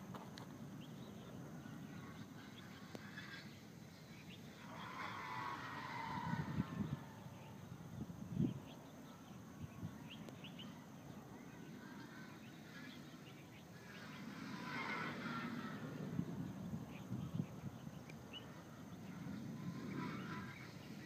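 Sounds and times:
wind buffeting microphone: 5.2s - 8.8s, 13.7s - 21.0s.

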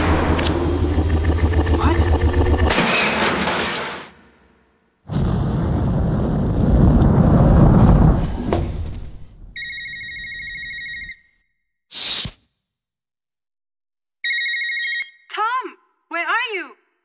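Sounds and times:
elevator crashing down shaft: 0.0s - 4.4s
pulsing telephone ring: 9.6s - 11.2s, 14.2s - 15.1s.

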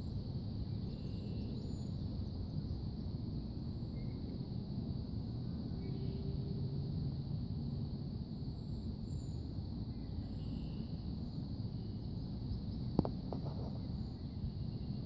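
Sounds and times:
steady high hum: 0.0s - 15.0s
steady low rumble: 0.0s - 15.0s
faint bird chirps: 0.1s - 4.4s, 5.7s - 6.4s, 8.5s - 15.0s.

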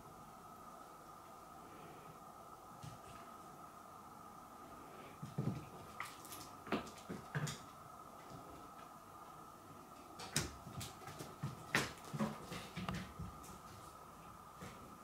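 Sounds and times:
faint steady tone: 0.0s - 6.8s.

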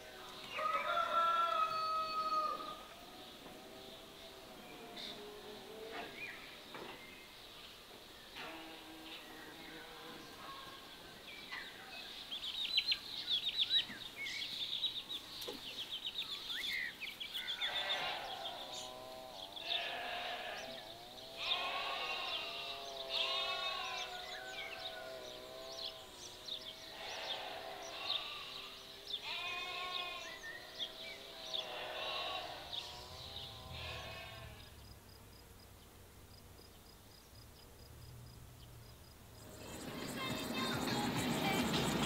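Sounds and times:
sheep bleating: 17.6s - 25.4s, 26.9s - 30.4s, 31.6s - 34.7s.

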